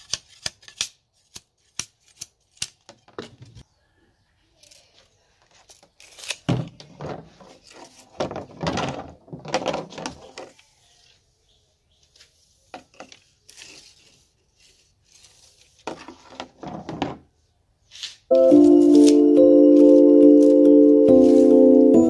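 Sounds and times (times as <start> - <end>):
bamboo strips scraping on wood: 0.0 - 2.9, 4.6 - 6.5, 7.2 - 8.2, 12.1 - 16.7, 17.8 - 21.7.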